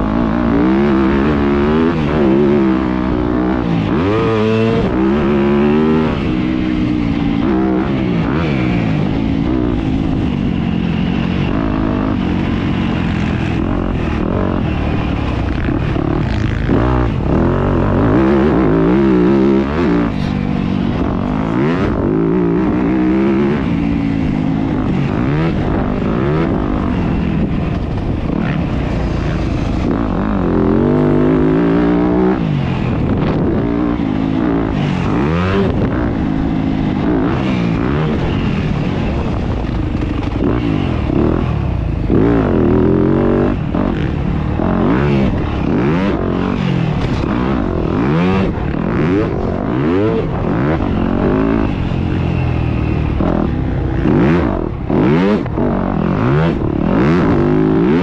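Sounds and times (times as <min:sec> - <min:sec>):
motocross engine revving: 0:00.0 - 0:58.0.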